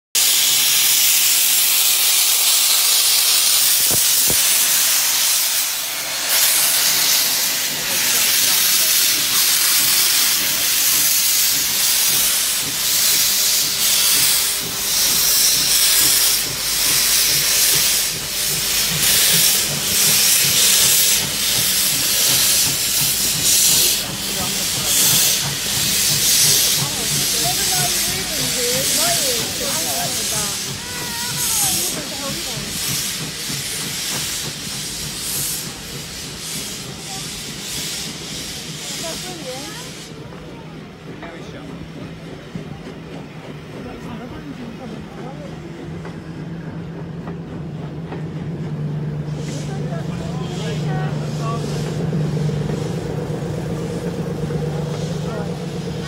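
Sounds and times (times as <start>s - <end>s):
steam hissing: 0.1s - 56.0s
steam exhaust beats: 0.2s - 56.0s.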